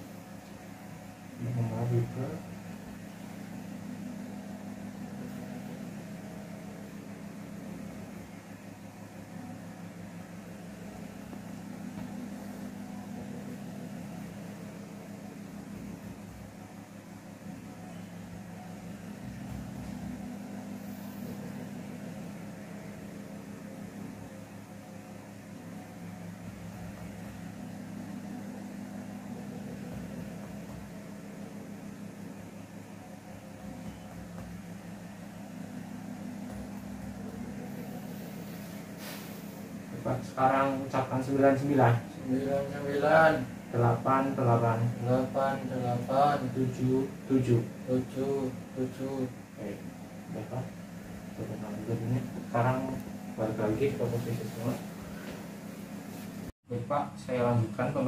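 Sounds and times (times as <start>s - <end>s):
steady low hum: 0.0s - 58.0s
faint hiss: 38.1s - 39.6s.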